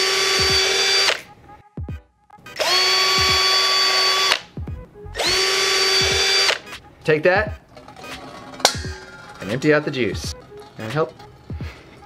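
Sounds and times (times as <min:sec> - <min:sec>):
cordless drill boring into coconut: 0:00.0 - 0:01.2, 0:02.6 - 0:04.4, 0:05.2 - 0:06.6.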